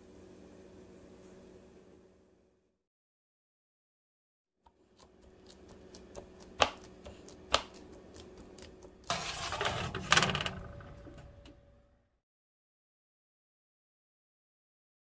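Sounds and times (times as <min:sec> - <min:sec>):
dense rattling and scraping: 0:09.1 - 0:11.0.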